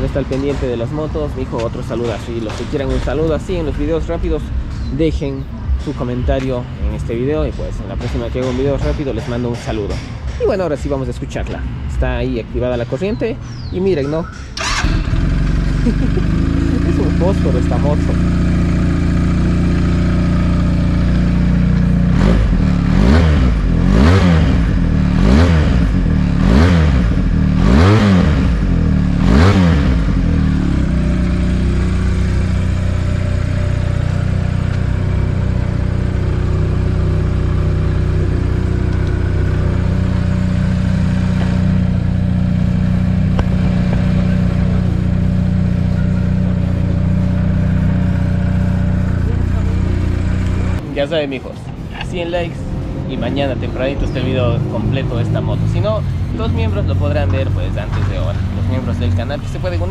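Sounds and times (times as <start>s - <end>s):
motorcycle engine idling: 0.0s - 11.1s, 13.1s - 51.1s
motorcycle throttle blips: 13.0s - 50.8s.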